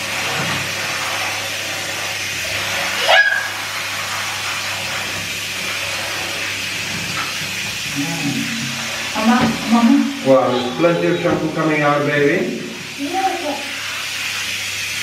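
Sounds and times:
shower water spraying: 0:00.0 - 0:15.0
toddler squealing: 0:03.0 - 0:03.6.

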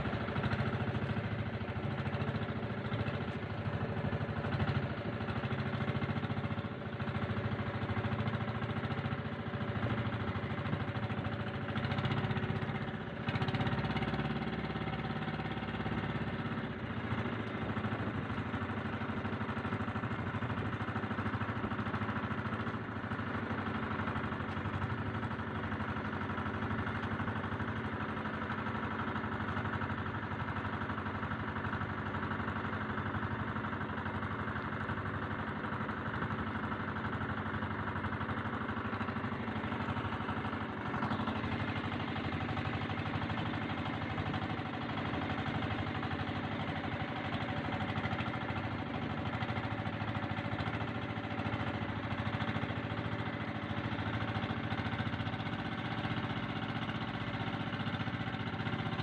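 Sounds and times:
boat engine running: 0:00.0 - 0:59.0.

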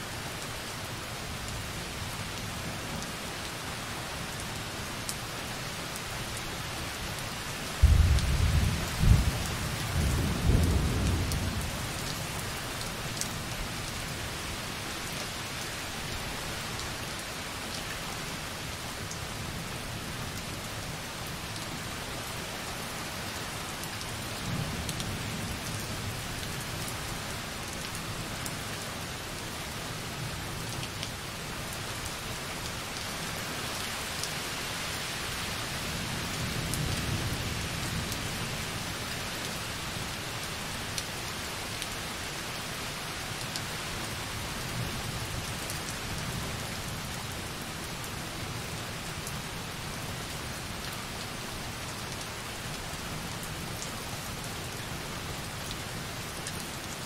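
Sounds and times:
rumble of thunder: 0:07.8 - 0:11.7.

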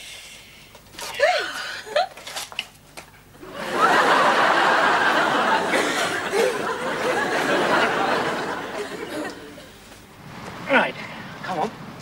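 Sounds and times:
studio audience laughing: 0:03.4 - 0:09.8.

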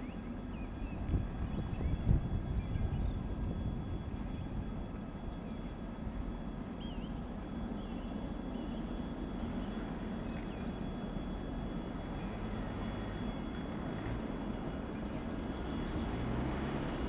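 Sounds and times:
steady background noise: 0:00.0 - 0:17.0
diesel locomotive rumble: 0:00.1 - 0:17.0
thin high whine: 0:07.4 - 0:17.0
faint chirps: 0:07.6 - 0:16.7.

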